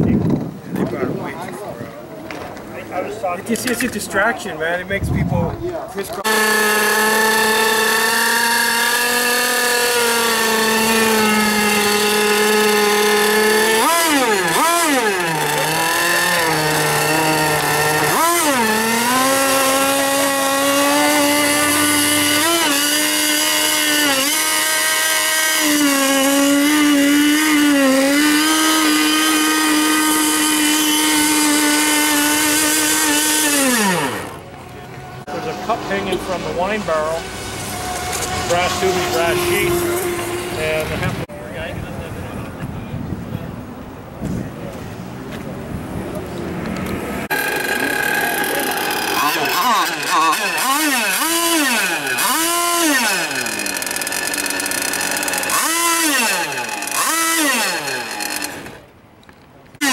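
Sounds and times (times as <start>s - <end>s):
model boat engine buzzing: 6.0s - 41.3s, 46.6s - 59.0s, 59.6s - 59.9s.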